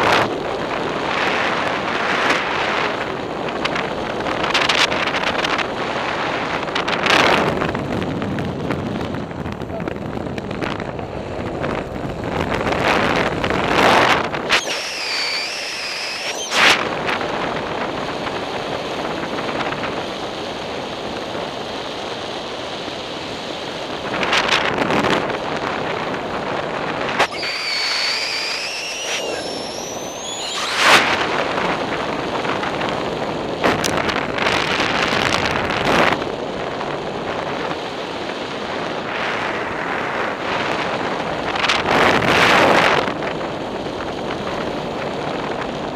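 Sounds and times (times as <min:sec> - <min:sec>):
wind rushing over microphone: 0:00.0 - 0:45.9
wavering high whistle: 0:14.5 - 0:16.8, 0:27.2 - 0:31.2.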